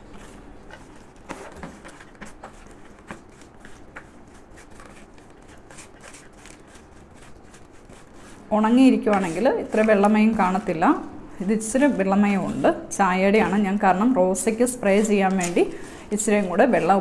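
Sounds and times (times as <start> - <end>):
hands rustling damp soil mix: 0.0 - 12.4.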